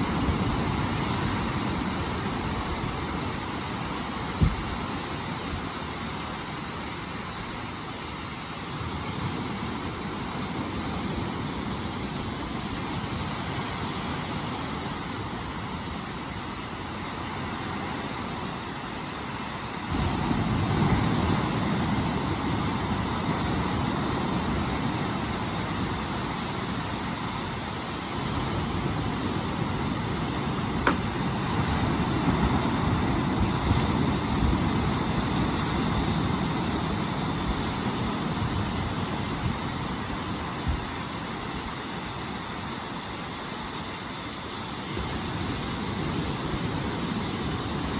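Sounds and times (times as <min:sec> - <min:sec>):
waves washing onto beach: 0:00.0 - 0:47.9
wind rumbling on microphone: 0:00.0 - 0:47.9
sharp click: 0:30.8 - 0:31.1.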